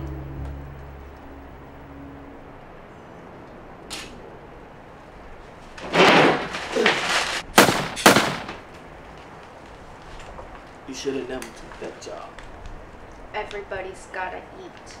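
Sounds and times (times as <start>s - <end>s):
sharp hits: 5.8s - 8.7s.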